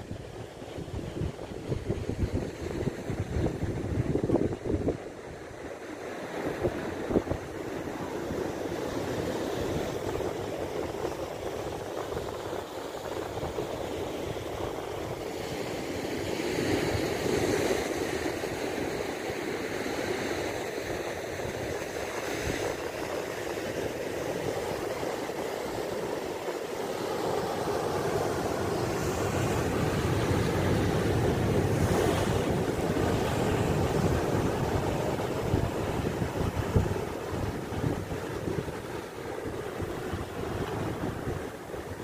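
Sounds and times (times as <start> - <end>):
wind buffeting microphone: 0.0 - 18.9, 20.5 - 42.0
surf breaking on rocks: 21.7 - 42.0.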